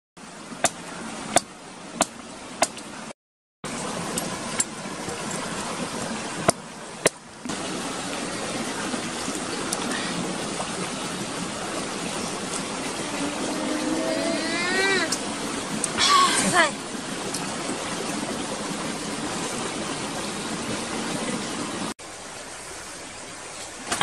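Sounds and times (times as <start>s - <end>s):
flowing water: 0.2s - 24.0s.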